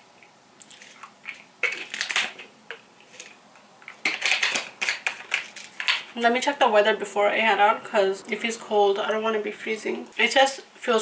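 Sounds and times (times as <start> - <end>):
tablets rattling in bottle: 3.1 - 6.1.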